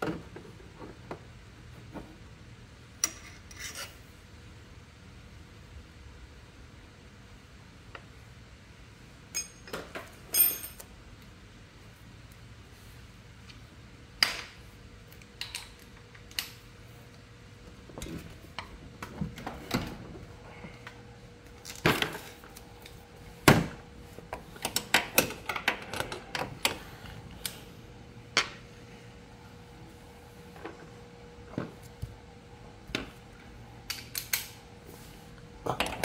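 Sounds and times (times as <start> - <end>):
metal tools clinking: 9.4 - 10.8.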